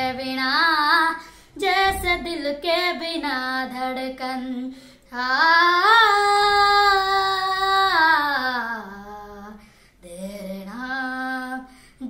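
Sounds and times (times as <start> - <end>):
boy singing unaccompanied: 0.0 - 11.7.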